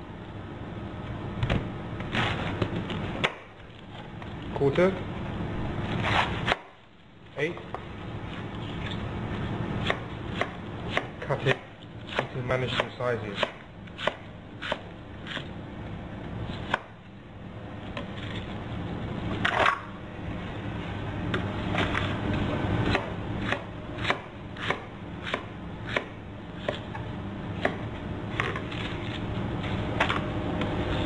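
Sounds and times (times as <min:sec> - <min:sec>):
knife chopping on cutting board: 0:09.8 - 0:15.4, 0:22.9 - 0:26.8.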